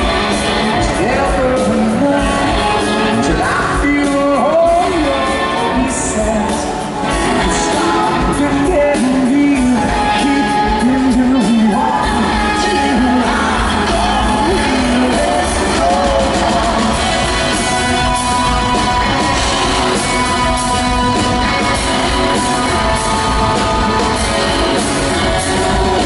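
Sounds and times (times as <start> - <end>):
live pop rock band playing: 0.0 - 26.0
man singing lead vocal: 0.0 - 26.0.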